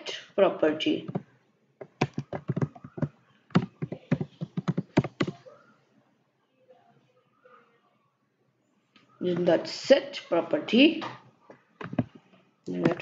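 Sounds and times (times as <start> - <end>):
typing on computer keyboard: 1.1 - 5.4.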